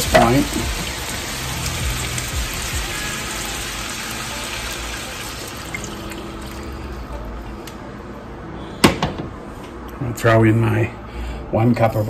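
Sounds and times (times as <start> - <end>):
pan sizzling: 0.0 - 6.8
water pouring into hot skillet: 0.0 - 7.1.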